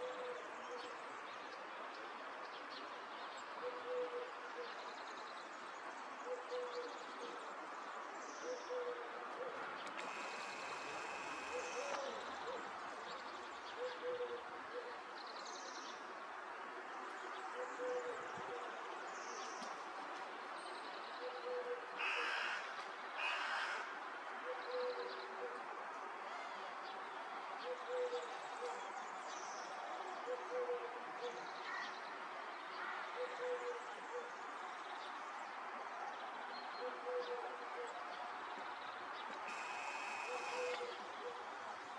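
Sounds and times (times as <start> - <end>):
dove cooing: 3.6 - 4.3, 6.3 - 6.9, 8.4 - 12.7, 13.8 - 14.9, 17.6 - 18.6, 21.2 - 22.4, 24.5 - 25.6, 27.6 - 28.4, 30.3 - 30.9, 33.2 - 34.3, 36.8 - 37.9, 39.5 - 41.4
steady hiss: 10.0 - 12.0, 39.5 - 40.7
short harsh bird calls: 10.0 - 12.1, 39.4 - 41.0.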